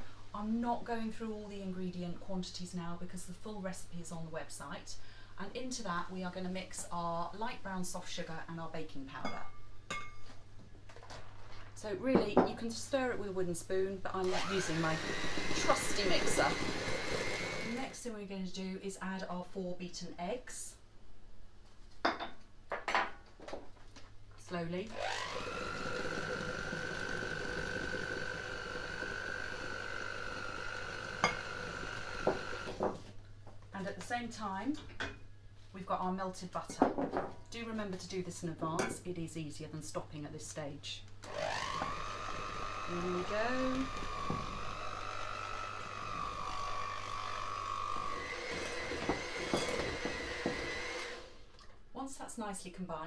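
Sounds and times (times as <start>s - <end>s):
electric mixer motor whine: 14.2s - 18.0s, 24.9s - 32.9s, 41.2s - 51.5s.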